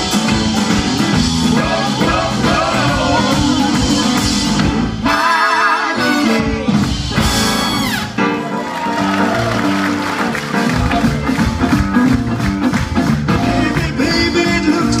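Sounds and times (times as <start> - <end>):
instrumental band music: 0.0 - 15.0.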